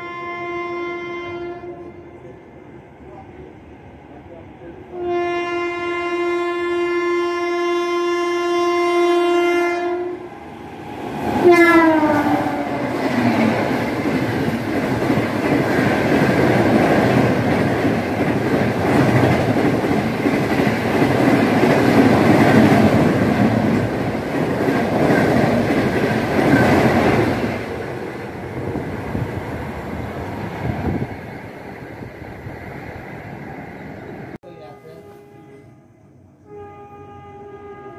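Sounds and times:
locomotive horn blast: 0:00.0 - 0:02.3, 0:04.9 - 0:10.3, 0:11.4 - 0:13.1, 0:34.4 - 0:37.9
train coaches rumbling and clattering: 0:10.3 - 0:34.4.

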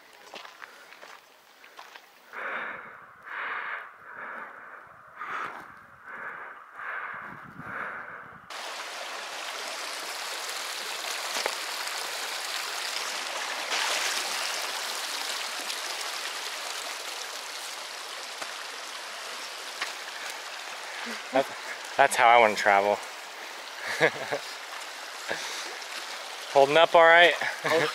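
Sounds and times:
heavy rhythmic breathing: 0:02.3 - 0:08.5
flowing stream: 0:08.5 - 0:27.9.

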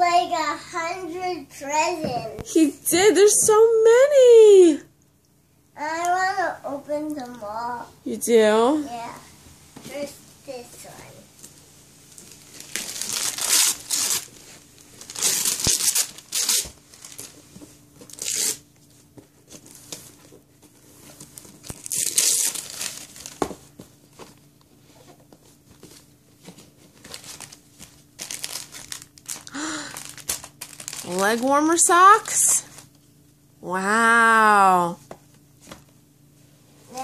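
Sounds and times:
paper crinkling and rustling: 0:11.5 - 0:33.0
wrapping paper ripping: 0:12.1 - 0:17.4, 0:18.0 - 0:18.7, 0:21.1 - 0:23.5, 0:26.9 - 0:32.9.

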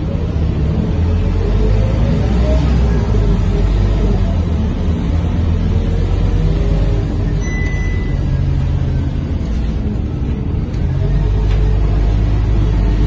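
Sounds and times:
bus engine low rumble: 0:00.0 - 0:13.0
brief high tone: 0:07.4 - 0:08.4.

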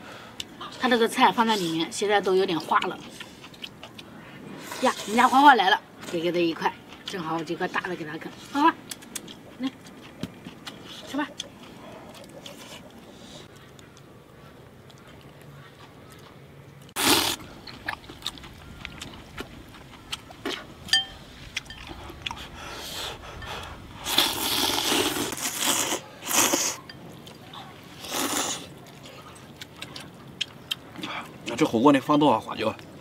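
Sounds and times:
eating clicks and crunches: 0:08.8 - 0:20.9, 0:24.1 - 0:31.7
people slurping noodles: 0:17.0 - 0:17.4, 0:21.9 - 0:26.8, 0:27.9 - 0:29.2.

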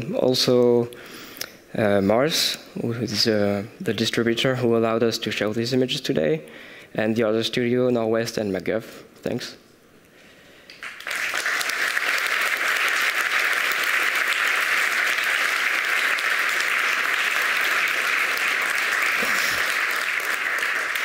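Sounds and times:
audience applauding: 0:10.8 - 0:21.0.

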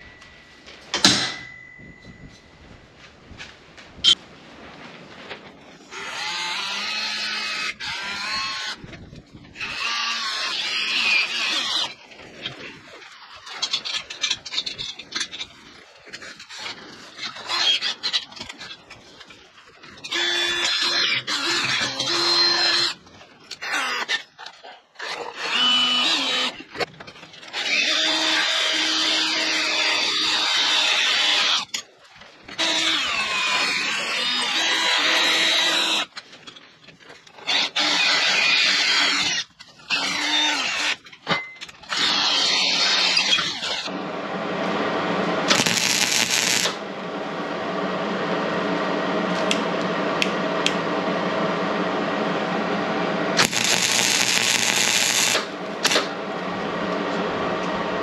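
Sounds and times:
steel parts clicking and scraping: 0:13.4 - 0:15.6
machine whirring: 0:43.5 - 0:58.0
cordless drill boring into steel: 0:45.5 - 0:46.8, 0:53.4 - 0:56.2
drill bit squealing: 0:45.5 - 0:46.8, 0:53.4 - 0:56.1.

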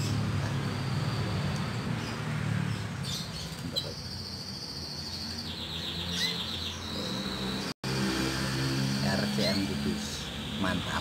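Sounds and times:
canary trilling: 0:00.0 - 0:07.7.

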